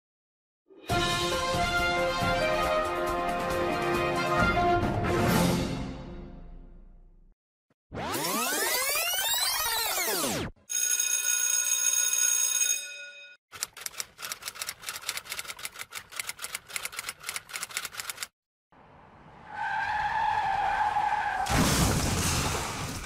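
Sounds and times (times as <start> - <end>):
bright ringing tone: 10.7 - 13.4
fast run of clicks: 13.5 - 18.3.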